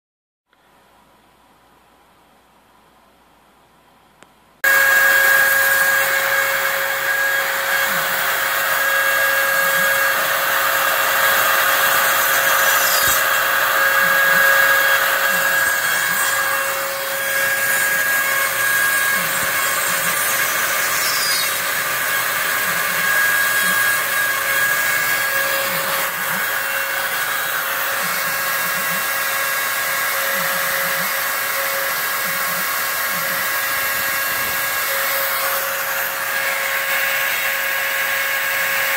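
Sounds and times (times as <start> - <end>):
dust vacuum rushing: 4.6 - 31.8
router spindle milling foam: 4.6 - 38.9.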